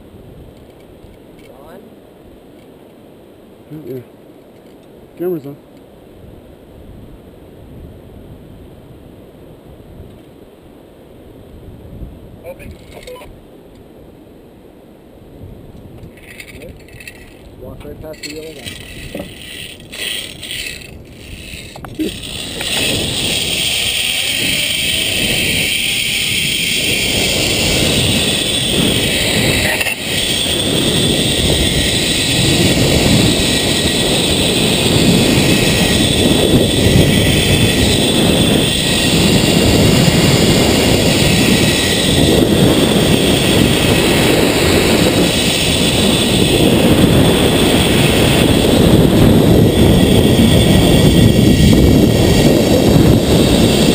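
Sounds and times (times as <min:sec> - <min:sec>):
wind rushing over microphone: 0:00.0 - 0:04.1, 0:05.1 - 0:53.9
zipline pulleys whirring on cable: 0:16.1 - 0:17.4, 0:18.1 - 0:53.9.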